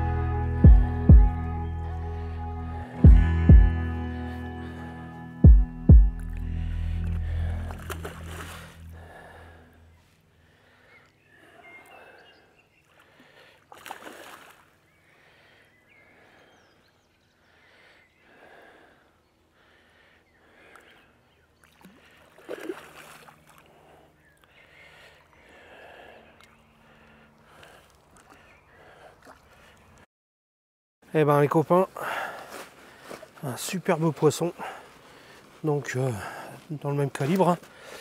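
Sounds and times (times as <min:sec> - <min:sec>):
water splashing and lapping: 0:07.0 - 0:09.6, 0:12.8 - 0:15.3, 0:21.6 - 0:30.0.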